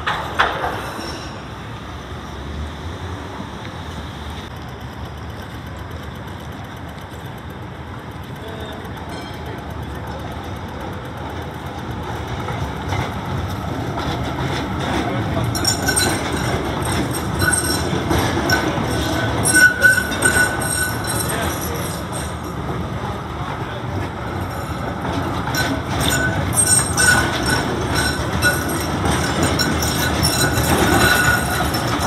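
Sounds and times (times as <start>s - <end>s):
tram running on rails: 0.0s - 32.0s
thin high squeal: 0.8s - 1.4s, 15.6s - 22.5s
wheels clicking: 4.5s - 32.0s.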